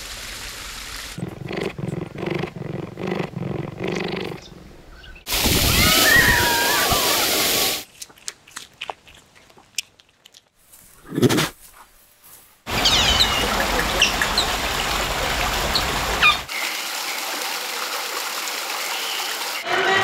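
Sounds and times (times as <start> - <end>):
animal grunts: 1.2 - 4.7, 11.0 - 11.6
churning water rushing: 5.3 - 7.8, 12.7 - 20.0
waterfall splashing: 5.3 - 7.8, 12.7 - 19.6.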